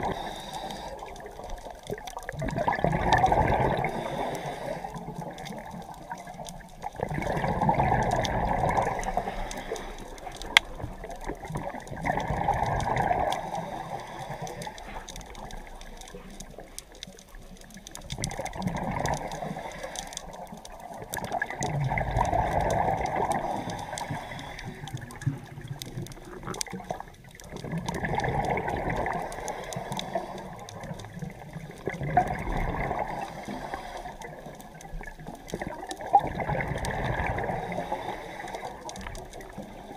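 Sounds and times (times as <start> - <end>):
scuba regulator breathing: 0.0 - 1.7, 3.4 - 5.7, 7.3 - 11.2, 12.2 - 17.0, 18.8 - 20.7, 22.4 - 25.6, 28.3 - 34.8, 37.0 - 39.9
air bubbles rushing: 0.0 - 39.9.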